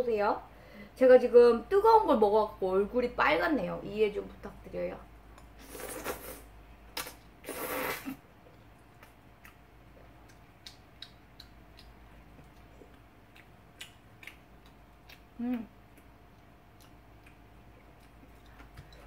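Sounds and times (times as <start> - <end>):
person slurping noodles: 5.6 - 8.2
wet mouth clicks: 7.0 - 8.2, 10.2 - 12.7, 13.3 - 16.1
quiet chewing: 8.4 - 19.0.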